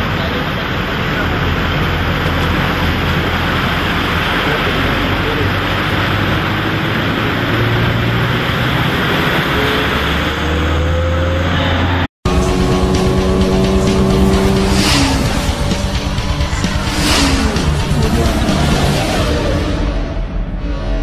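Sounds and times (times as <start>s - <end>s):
water splashing from wheels: 0.0s - 20.3s
bus engine running: 0.0s - 21.0s
music: 12.3s - 21.0s.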